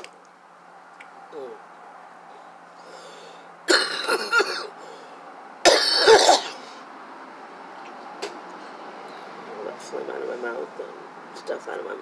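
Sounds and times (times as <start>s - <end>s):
woman coughing: 3.7s - 4.7s, 5.7s - 6.6s.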